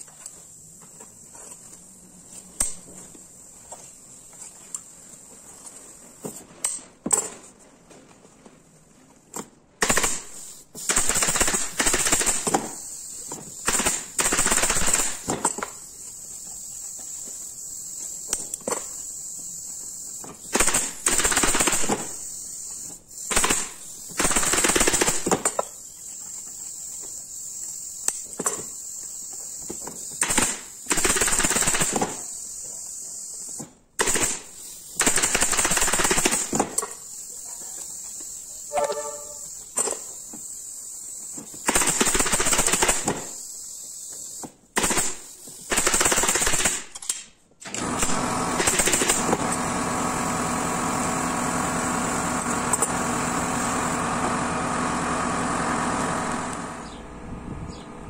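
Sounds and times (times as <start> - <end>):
steady high hiss: 9.9 - 47.4.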